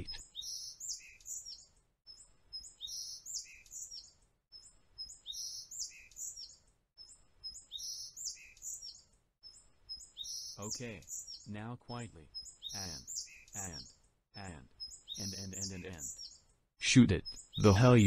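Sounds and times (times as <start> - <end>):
bird chirps and whistles: 2.6 - 4.1, 5.0 - 9.0, 9.9 - 11.4.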